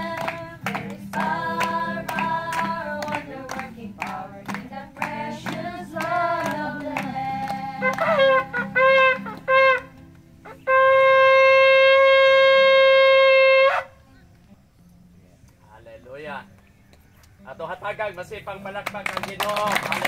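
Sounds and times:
shofar blasts: 7.8 - 14.0.

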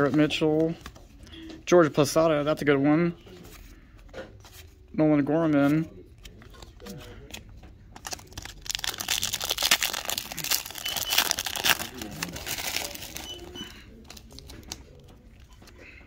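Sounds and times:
plastic foil wrapper crinkling: 8.0 - 15.0.

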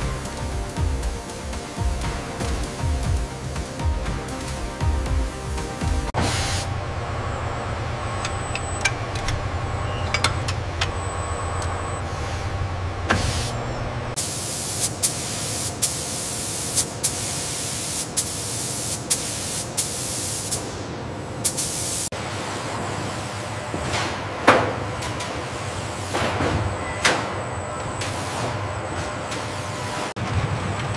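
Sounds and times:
low machine hum: 0.0 - 14.2
paint spray gun hissing: 14.2 - 20.7, 21.5 - 22.1.

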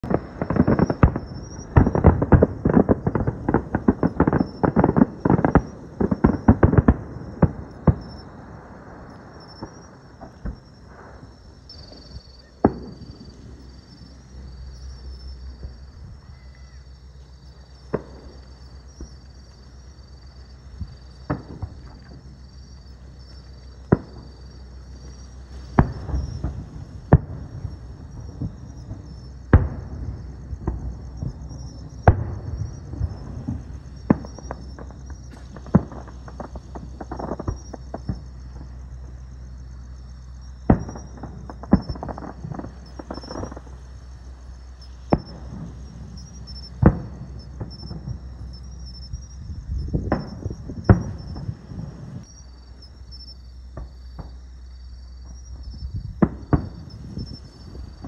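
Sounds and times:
fireworks bursting with bangs: 0.0 - 58.0
low rumble: 7.0 - 53.0.

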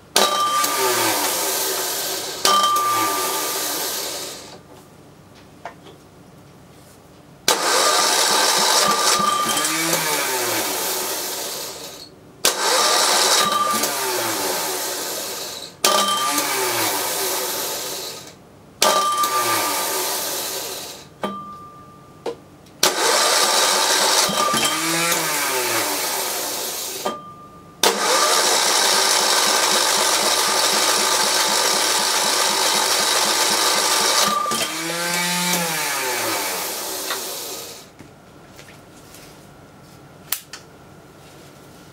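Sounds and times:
diesel generator starter cranking: 0.2 - 4.6, 7.5 - 21.0, 22.8 - 27.1, 27.8 - 37.8.

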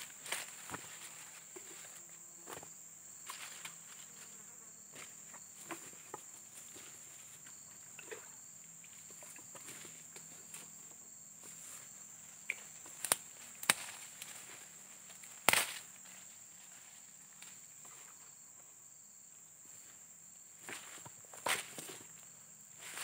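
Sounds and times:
sharp snaps: 12.4 - 14.3, 15.4 - 15.8.

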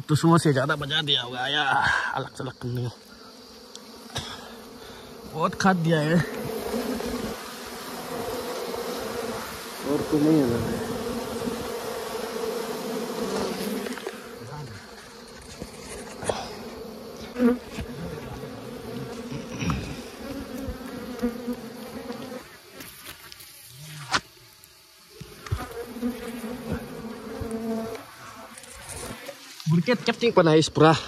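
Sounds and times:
honeybees buzzing: 0.1 - 31.0.

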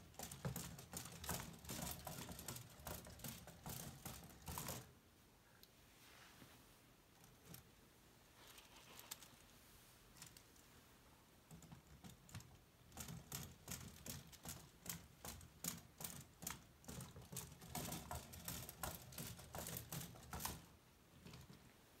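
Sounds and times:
plastic legs clicking on treadmill: 0.0 - 4.9, 11.5 - 21.6.

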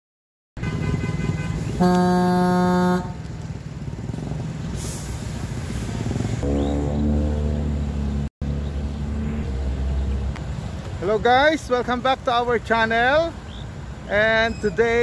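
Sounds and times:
vehicle horn blast: 0.6 - 3.3
road traffic passing: 0.6 - 15.0.

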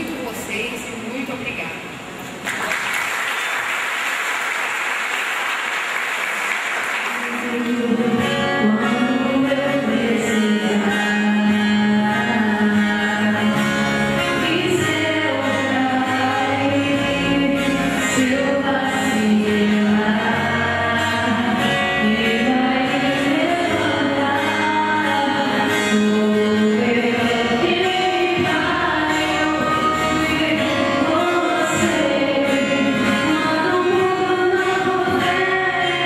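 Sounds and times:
applause: 2.4 - 7.8
acoustic guitars: 3.6 - 36.0
woman singing into microphone: 7.1 - 36.0.

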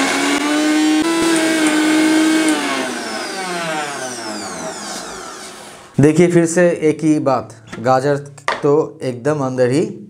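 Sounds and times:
mixer grinder motor whine: 0.0 - 6.0.

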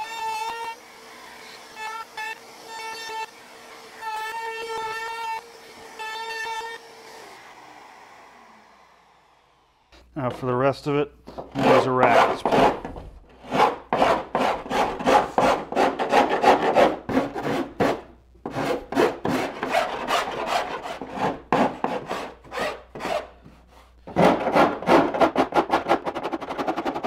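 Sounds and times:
hand rasp filing wood: 11.5 - 12.8, 13.4 - 27.0.

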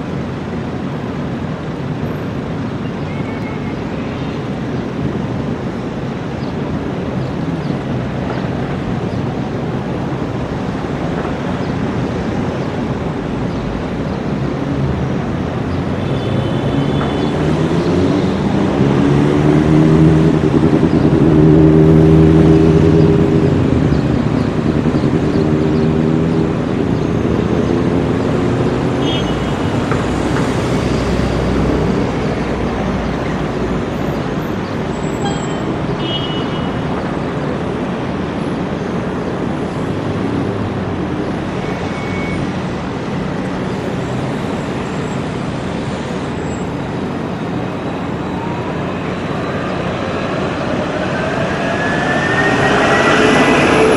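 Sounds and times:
tram rolling noise: 0.0 - 36.0, 36.7 - 53.9
electric traction whine: 47.2 - 53.9.

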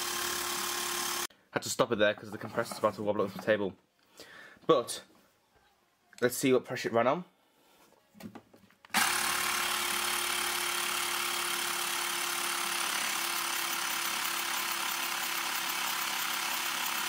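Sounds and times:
air compressor running: 0.0 - 1.3, 8.9 - 17.0.

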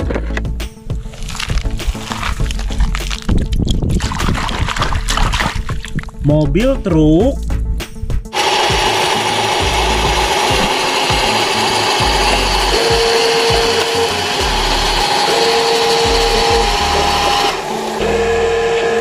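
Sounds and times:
dirt and gravel sliding: 0.0 - 6.0
electric motor whining: 8.4 - 19.0
lower motor tone: 8.4 - 19.0.

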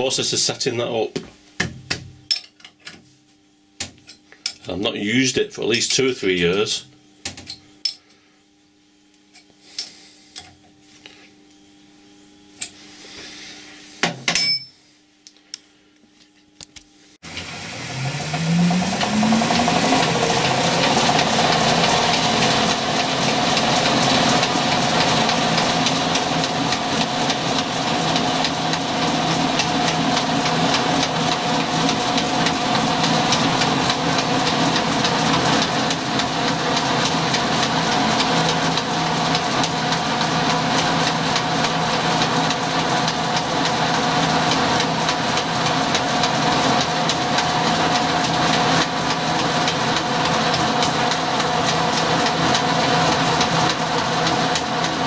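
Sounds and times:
lathe motor running: 17.2 - 55.0.

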